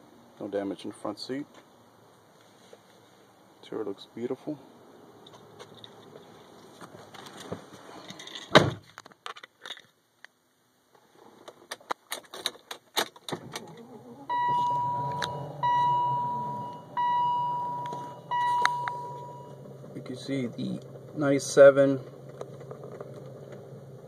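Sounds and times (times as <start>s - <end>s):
car door shutting: 13.0s - 19.7s
seat-belt warning chime: 14.3s - 19.6s.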